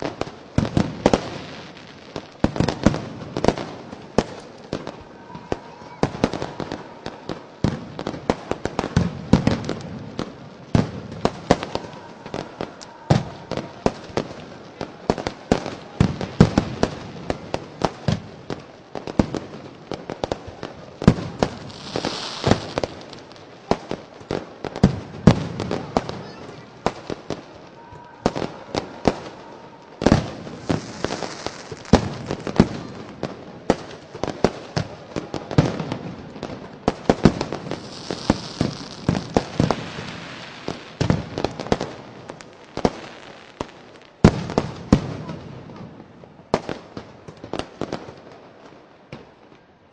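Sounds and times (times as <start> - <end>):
fireworks and firecrackers banging: 0.0 - 49.9
fireworks hissing burst: 21.4 - 23.3, 30.3 - 32.6, 37.6 - 41.1.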